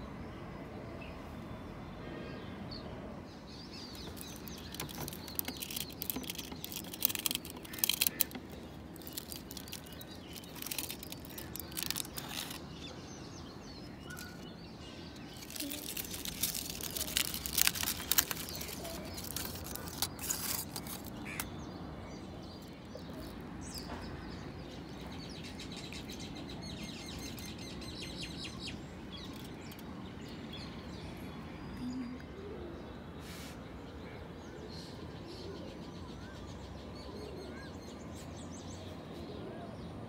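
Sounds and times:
small birds chirping faintly: 0.0s - 40.0s
aluminium foil crinkling: 3.9s - 13.1s, 13.8s - 21.5s, 22.6s - 23.5s, 29.2s - 29.8s.

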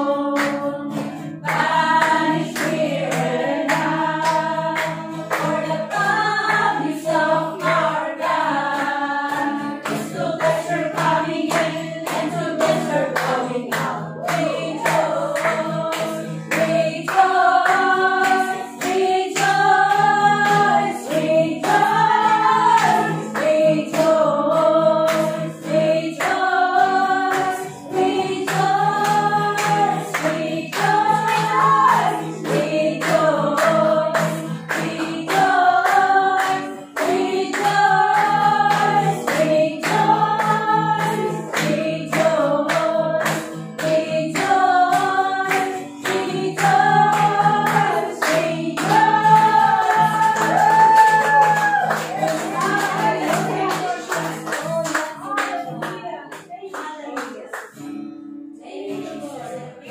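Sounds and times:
group of voices singing: 0.0s - 56.6s, 58.6s - 59.9s.

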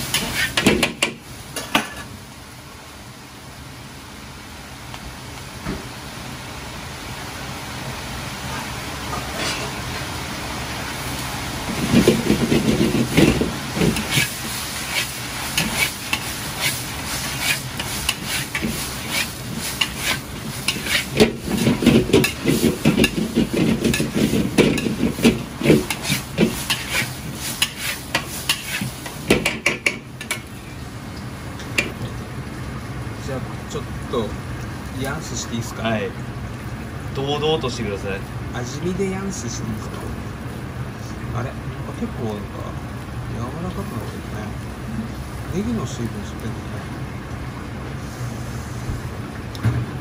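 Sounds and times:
metal ladle scraping a wok: 0.0s - 0.6s, 11.8s - 29.0s
food sizzling: 0.0s - 50.0s.

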